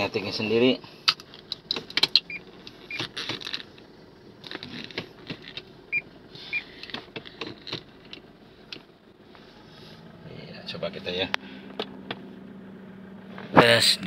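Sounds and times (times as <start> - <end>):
gear lever clicks and clunks: 1.0 - 5.7, 6.8 - 8.9.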